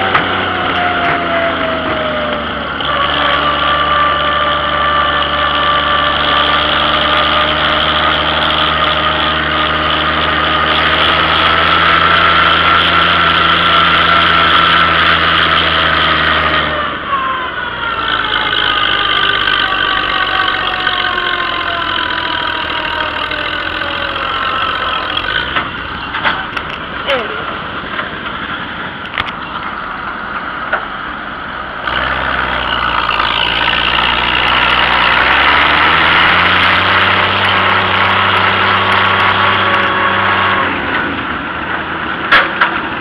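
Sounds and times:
tractor engine running: 0.0 - 43.0.

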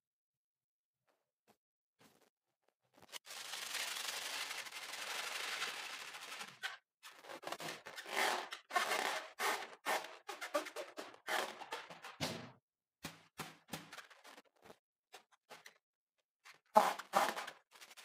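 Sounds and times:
balloon squeezes: 16.8 - 17.6.

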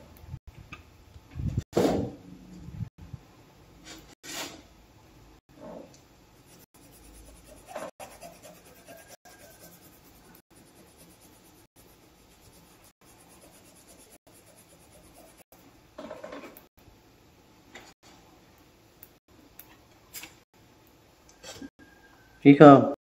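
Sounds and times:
colored pencil scratching on paper: 6.4 - 15.5.

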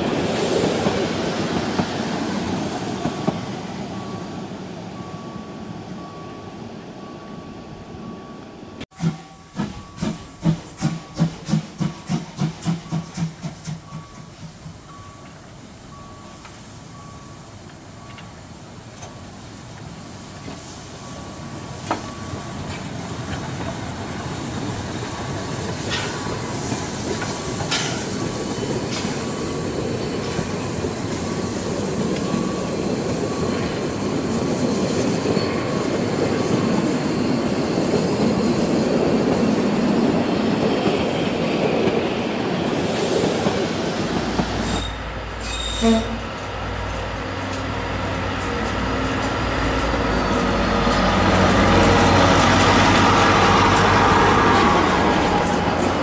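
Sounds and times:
train wheels on rails: 0.0 - 6.3, 8.1 - 56.0
diesel locomotive engine rumble: 0.0 - 56.0
wheel squeal: 44.6 - 46.2.

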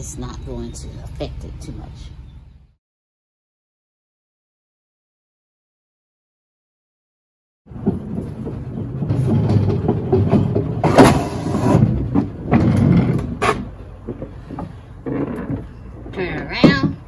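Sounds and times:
mower wheels rumbling on wooden deck: 7.7 - 17.0
wheels knocking on board edges: 7.7 - 17.0.

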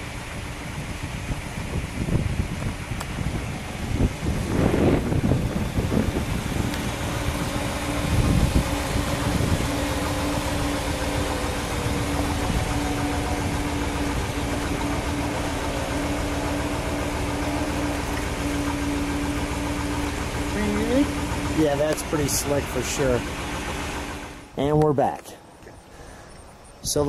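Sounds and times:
car engine idling: 0.0 - 27.0
steady hum: 0.0 - 27.0
wind gusts on microphone: 0.1 - 18.4.

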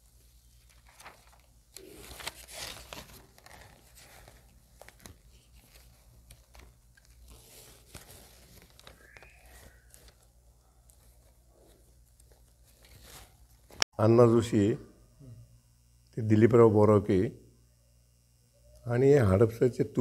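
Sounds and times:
paper pages rustling: 0.0 - 13.8.

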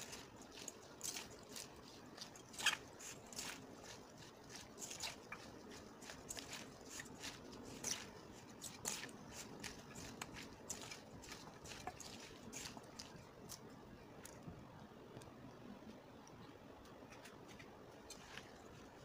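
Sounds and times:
wet squishing and crackling: 0.0 - 14.5.

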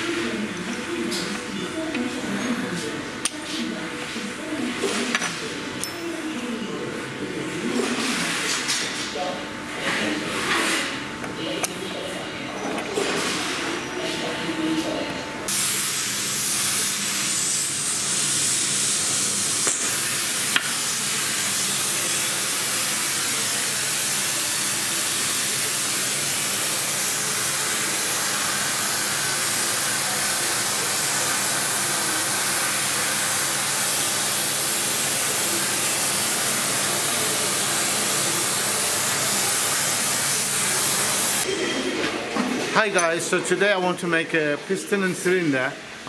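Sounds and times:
loud steady hiss: 15.5 - 41.4.

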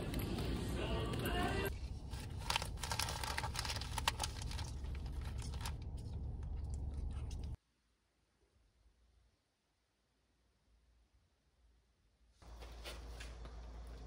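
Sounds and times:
handling clicks and rustling: 0.0 - 7.6
low rumble: 0.0 - 7.6.

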